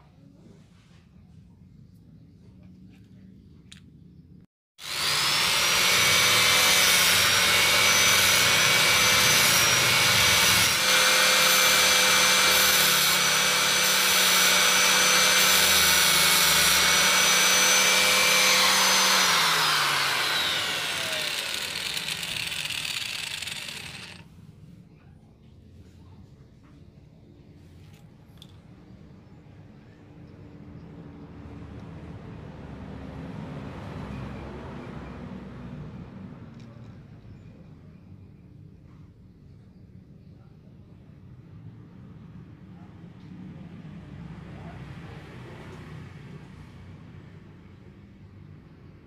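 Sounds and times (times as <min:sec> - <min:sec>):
angle grinder sanding wood: 0:04.8 - 0:24.2.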